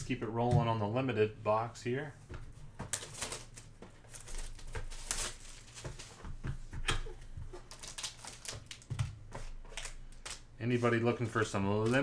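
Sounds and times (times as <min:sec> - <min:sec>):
foil packs rustling and crinkling: 0:02.9 - 0:06.4, 0:07.6 - 0:12.0.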